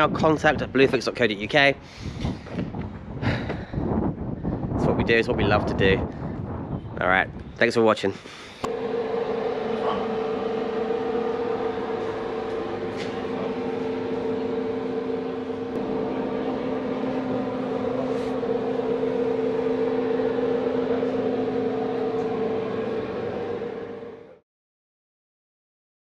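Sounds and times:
machinery humming: 0:08.4 - 0:24.4.

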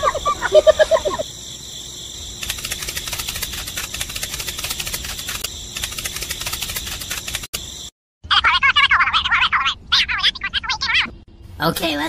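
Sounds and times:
crickets chirring: 0:00.0 - 0:07.9
rapid dry ticks: 0:02.4 - 0:07.9.

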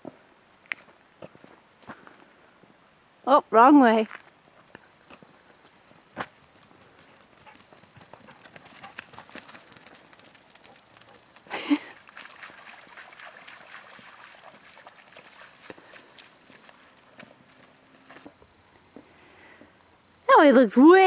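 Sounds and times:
dog paws crunching on leaves: 0:04.2 - 0:18.4.

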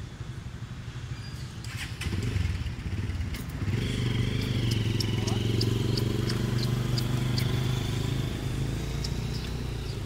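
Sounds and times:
motorcycle engine running: 0:02.0 - 0:10.0.

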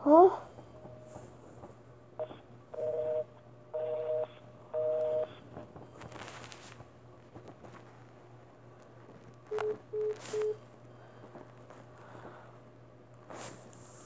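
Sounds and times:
telephone busy signal beeps: 0:02.2 - 0:05.4, 0:09.5 - 0:10.6.

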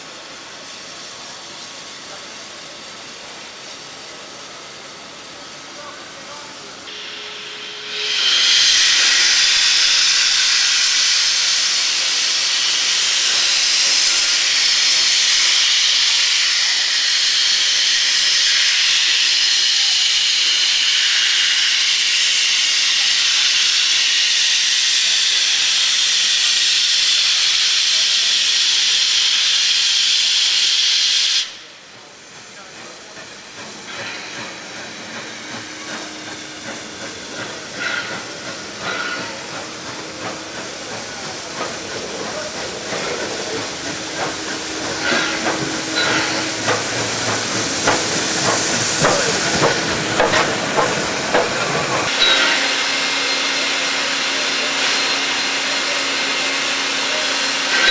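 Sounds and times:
steam hissing from locomotive: 0:00.0 - 0:57.9
locomotive knocks and clanks: 0:44.9 - 0:52.5.

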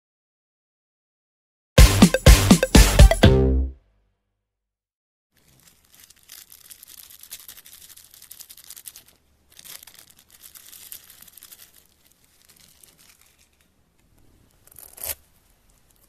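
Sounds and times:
plastic bag crinkling: 0:05.4 - 0:16.0.

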